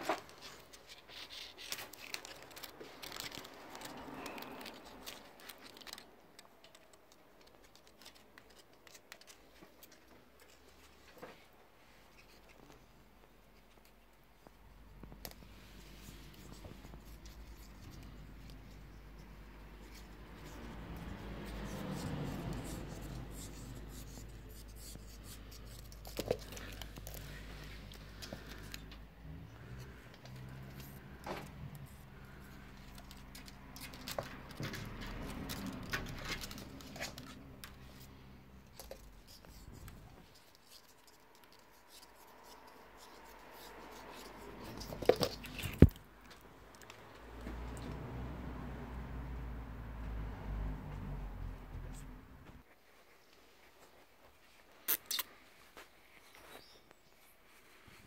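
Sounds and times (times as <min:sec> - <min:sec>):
scratchy rustling: 0:00.0 - 0:46.9.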